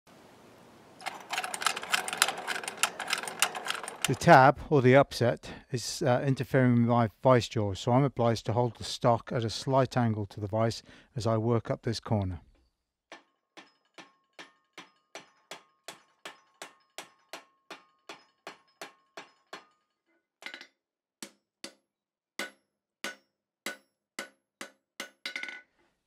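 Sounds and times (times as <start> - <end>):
hammer ringing on hot steel: 22.4 - 24.3.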